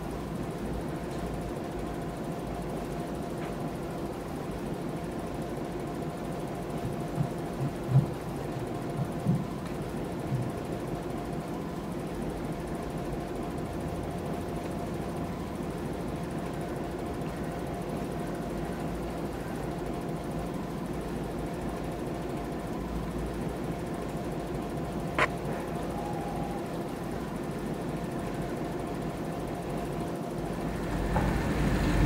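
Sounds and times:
faint steady whine: 0.0s - 32.0s
diesel locomotive running: 24.4s - 32.0s.

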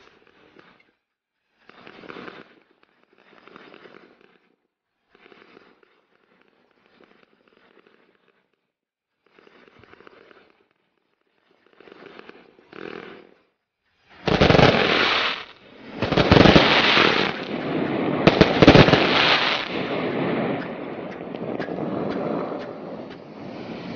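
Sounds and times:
fireworks popping and crackling: 11.5s - 13.4s, 14.1s - 23.9s
fireworks volleys: 11.5s - 23.9s.

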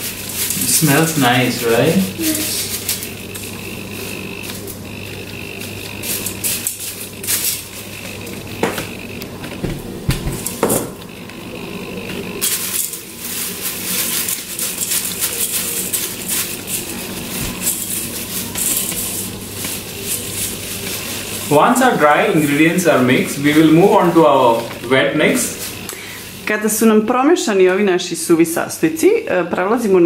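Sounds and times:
dry grains rustling in a bowl: 0.0s - 8.6s, 12.2s - 27.0s.

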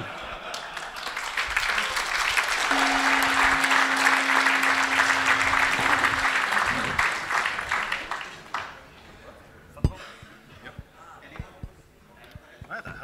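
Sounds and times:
audience applauding: 0.5s - 8.8s
steady tone: 2.7s - 7.7s.

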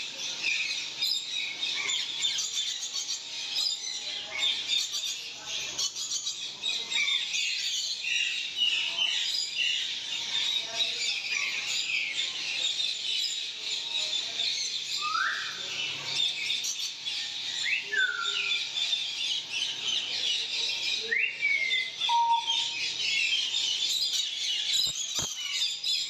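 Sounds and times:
parakeets chattering: 0.0s - 26.0s
shrill bird call: 15.0s - 15.7s, 20.9s - 25.8s.

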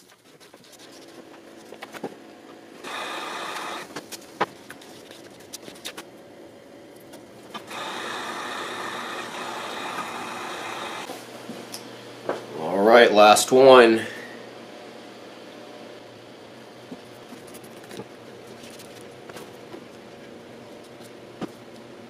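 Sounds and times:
heat gun fan whine: 0.7s - 22.0s.

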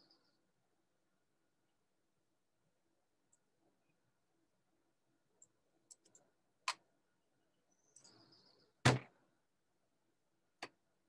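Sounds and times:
small clicks: 5.4s - 6.8s.

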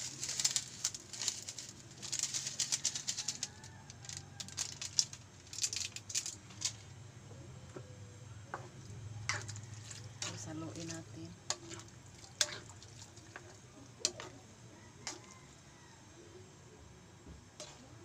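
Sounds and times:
noodles sizzling in a wok: 0.0s - 7.0s, 8.5s - 15.7s.

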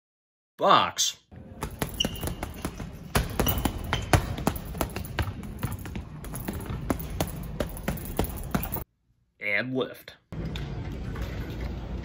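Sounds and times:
gloves punching heavy bag: 1.4s - 8.8s.

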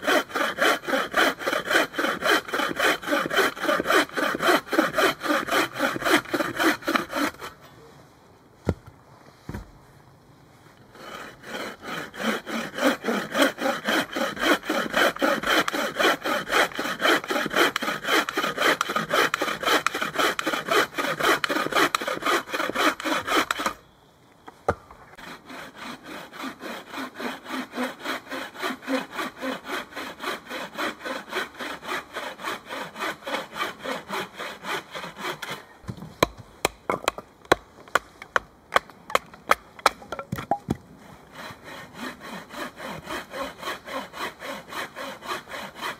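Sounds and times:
hand saw cutting a log: 0.0s - 7.6s, 11.0s - 23.8s, 25.2s - 36.3s, 41.2s - 45.9s.

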